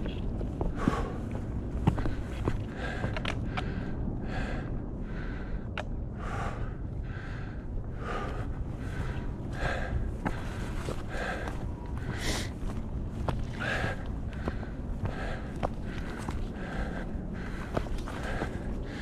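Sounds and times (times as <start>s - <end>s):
person breathing hard: 0.6s - 19.0s
trekking poles clicking on rock: 1.8s - 3.7s.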